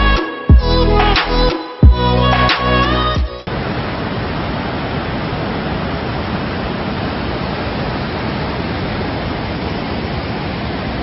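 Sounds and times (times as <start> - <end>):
stream rushing over boulders: 3.5 - 11.0.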